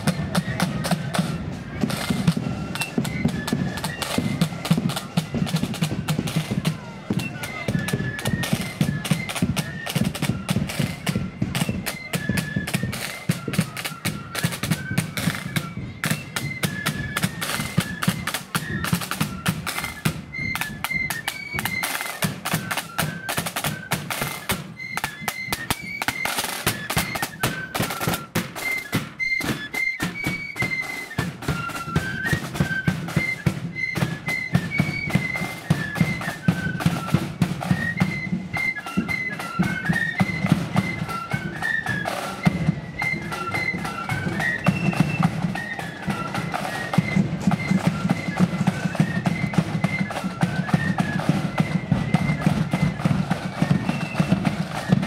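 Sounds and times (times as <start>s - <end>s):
flute melody: 0.0s - 55.0s
rapid side-drum strokes: 0.0s - 55.0s.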